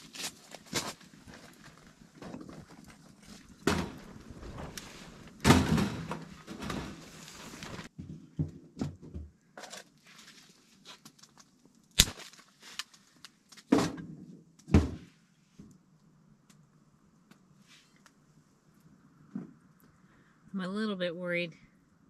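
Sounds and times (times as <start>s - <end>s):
branches rustling and crackling: 0.0s - 7.9s, 9.9s - 13.7s.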